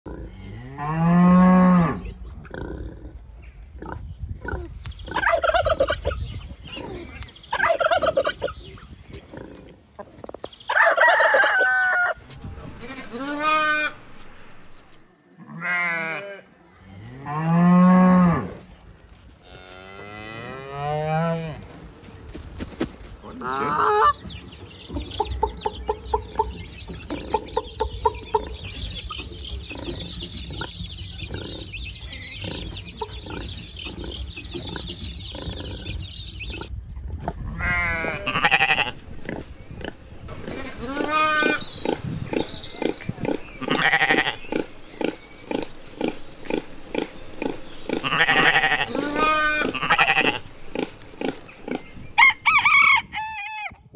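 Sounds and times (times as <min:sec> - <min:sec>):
chickens clucking: 0:02.0 - 0:15.0, 0:21.6 - 0:37.5, 0:38.1 - 0:53.7
chicks cheeping: 0:03.9 - 0:09.5, 0:23.4 - 0:37.4, 0:38.9 - 0:53.3
rooster crowing: 0:10.7 - 0:12.2, 0:52.2 - 0:53.8
cattle mooing: 0:43.6 - 0:44.4, 0:46.0 - 0:50.5.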